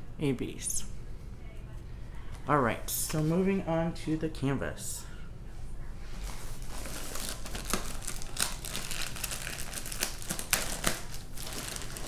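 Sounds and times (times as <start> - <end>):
plastic wrap crinkling: 6.2 - 12.0.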